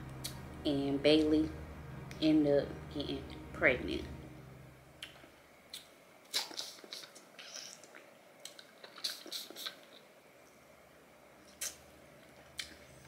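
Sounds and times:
person chewing: 5.0s - 10.0s, 11.5s - 12.9s.

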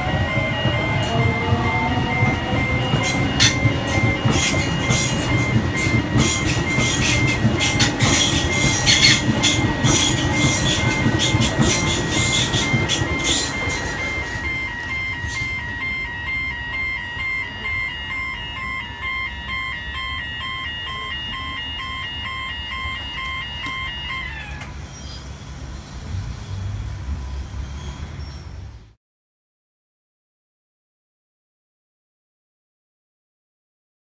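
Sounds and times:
level crossing bells ringing: 0.0s - 24.8s
electric train passing: 0.0s - 28.7s.

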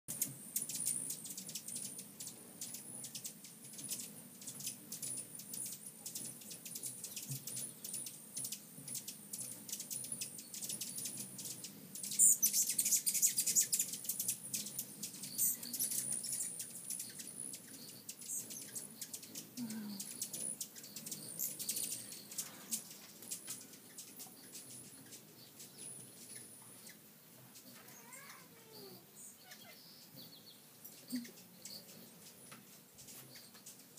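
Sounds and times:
hummingbird wing buzz: 0.1s - 26.5s
hummingbirds chirping: 0.1s - 33.9s.

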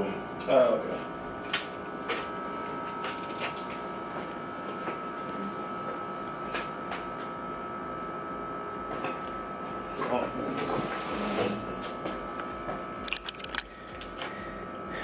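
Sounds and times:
machine hum with high whine: 0.0s - 15.0s.

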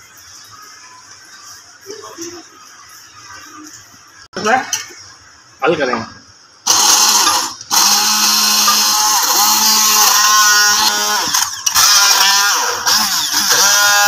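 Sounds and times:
hand blender chopping fruit: 6.7s - 14.0s.

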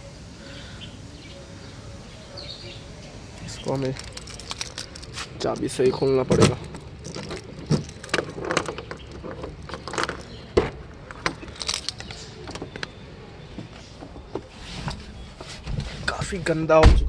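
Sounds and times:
key turning in car door lock: 3.8s - 10.4s, 11.1s - 13.0s
keys jangling: 3.8s - 10.4s, 11.1s - 12.2s.

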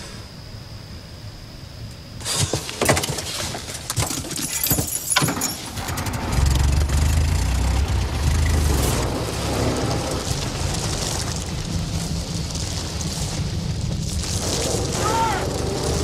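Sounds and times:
car engine humming: 5.8s - 16.0s.

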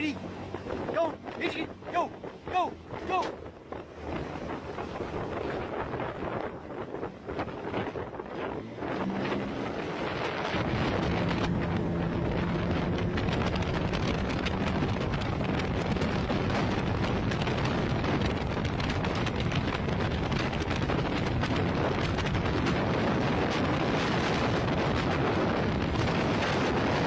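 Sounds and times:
wind buffeting microphone: 0.0s - 27.0s
low hum: 2.2s - 18.4s.

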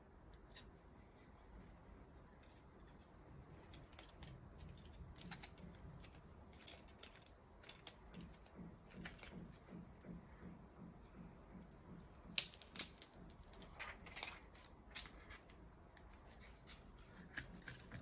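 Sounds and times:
clicks and taps of plastic parts: 3.7s - 15.2s.

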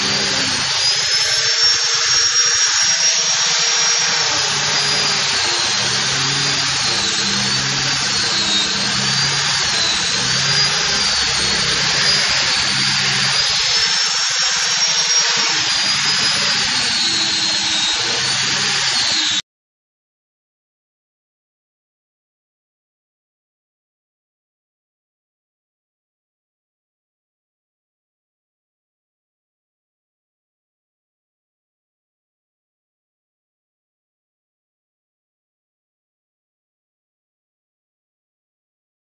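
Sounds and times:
angle grinder sanding wood: 0.0s - 19.4s.

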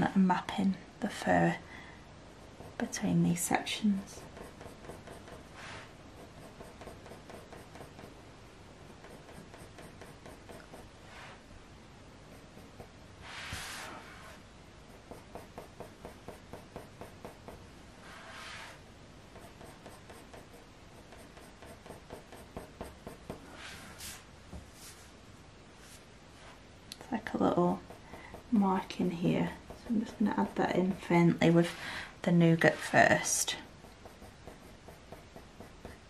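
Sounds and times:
coloured pencil scratching on paper: 2.4s - 8.2s, 8.8s - 11.4s, 12.2s - 24.1s, 27.2s - 31.8s, 32.5s - 36.0s.

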